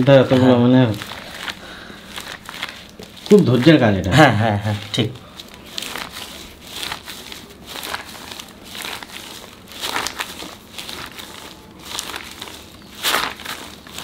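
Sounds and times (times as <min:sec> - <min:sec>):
dough rolling swishes: 0:00.0 - 0:14.0
plastic sheet crinkling: 0:00.0 - 0:14.0.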